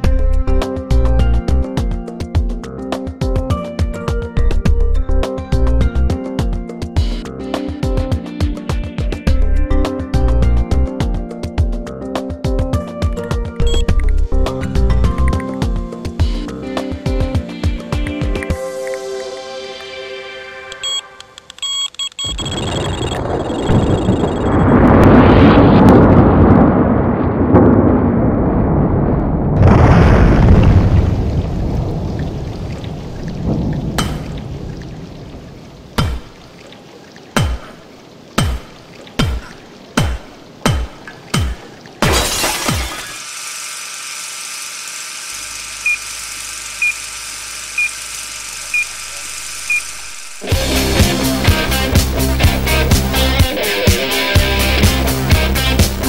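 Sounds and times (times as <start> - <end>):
short high beeps: 13.6 - 13.9, 20.8 - 24.7, 45.8 - 46.1, 46.8 - 47.0, 47.8 - 48.0, 48.7 - 50.2
loud explosion blast: 23.1 - 32.8
film projector whir: 43.2 - 50.4.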